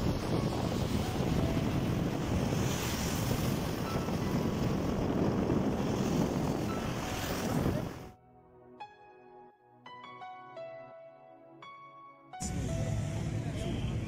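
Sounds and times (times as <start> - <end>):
wind buffeting microphone: 0.0 - 8.1.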